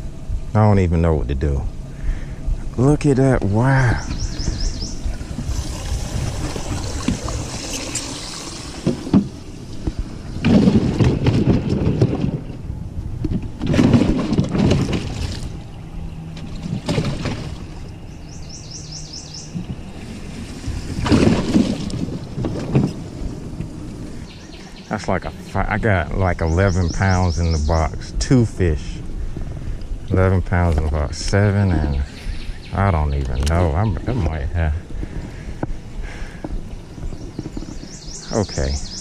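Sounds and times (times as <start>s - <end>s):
water splashing and sloshing: 4.3s - 18.3s, 19.4s - 25.2s.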